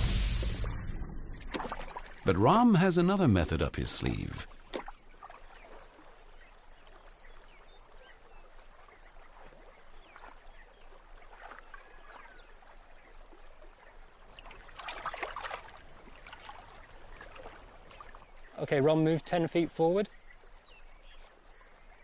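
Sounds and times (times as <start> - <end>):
water sloshing: 0.0 - 7.5, 9.0 - 19.0
water lapping and trickling: 0.0 - 22.0.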